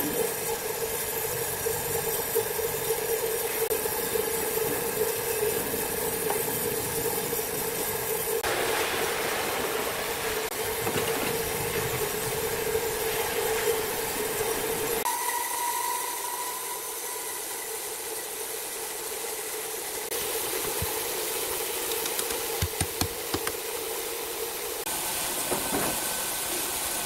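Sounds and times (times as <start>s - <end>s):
high saw whine: 12.4s - 22.3s.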